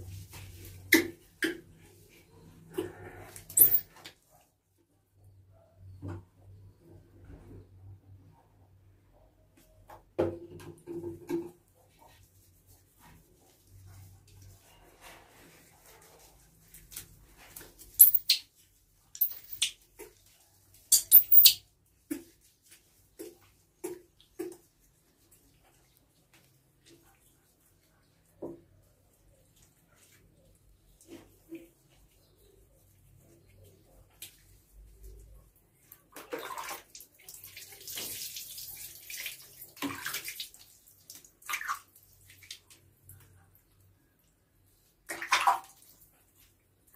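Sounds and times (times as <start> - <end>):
water pouring and splashing: 36.0 - 42.8.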